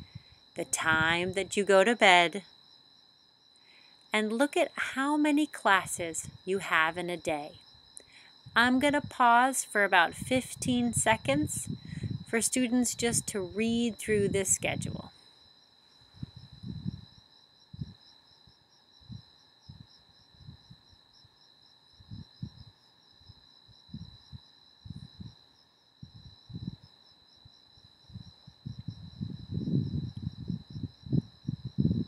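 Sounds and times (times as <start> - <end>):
soft low thumps and rumbles: 16.2 - 17.0, 28.2 - 32.0.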